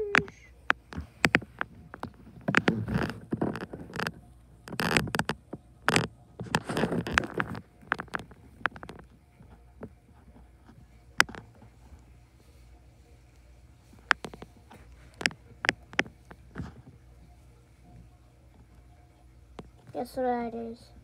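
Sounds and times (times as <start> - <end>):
phone handling clicks and taps: 14.0 - 16.8.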